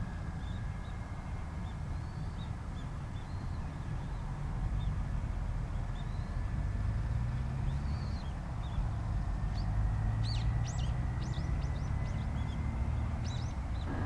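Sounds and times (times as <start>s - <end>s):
distant jet engines idling: 8.1s - 14.0s
bird chirping: 9.5s - 14.0s.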